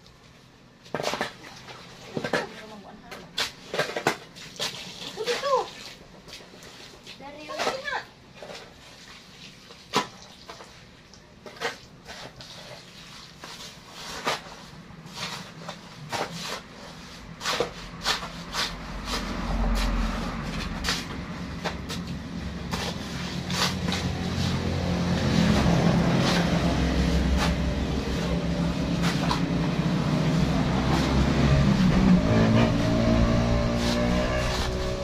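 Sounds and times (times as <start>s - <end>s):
shovel scraping soil: 11.4s - 35.0s
vehicle engine running: 18.8s - 35.0s.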